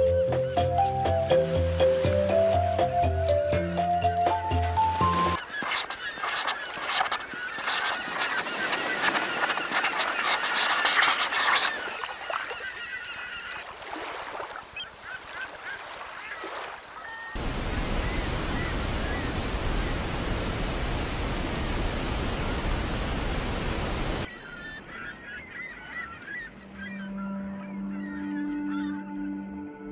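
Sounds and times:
gulls calling: 0.0s - 29.3s
waterfall roar: 17.4s - 24.3s.

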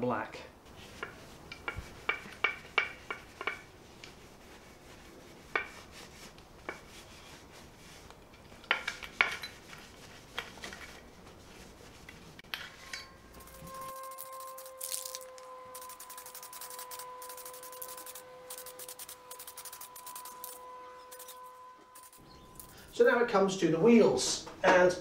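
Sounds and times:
cloth wiping metal: 0.7s - 8.1s, 8.9s - 15.1s, 15.7s - 22.9s
metallic clinks and knocks: 12.8s - 23.0s.

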